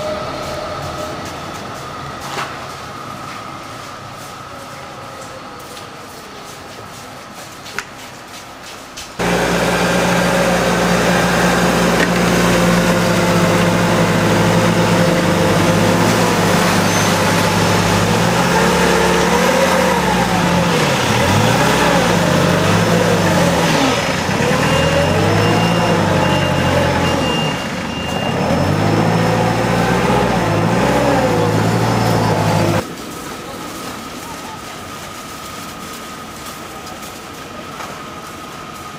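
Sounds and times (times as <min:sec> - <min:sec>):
snowplough engine revving: 0:09.2 - 0:38.9.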